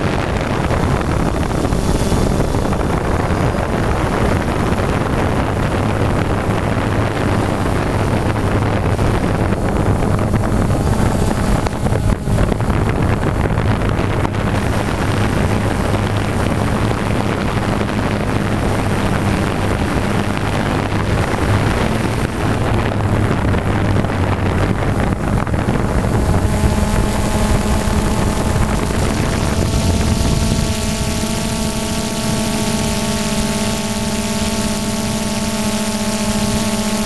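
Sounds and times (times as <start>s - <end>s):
drone propellers humming: 0.0s - 37.0s
high motor whines: 0.0s - 37.0s
wind on microphone: 0.0s - 37.0s.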